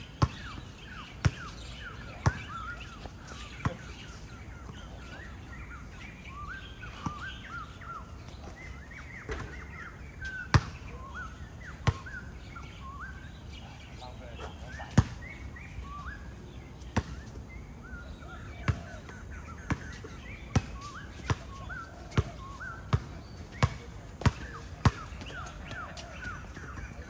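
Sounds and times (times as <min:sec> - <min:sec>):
basketball bouncing: 0:00.2 - 0:00.6, 0:22.9 - 0:25.1
shoes squeaking on court floor: 0:00.2 - 0:05.4, 0:19.7 - 0:27.0.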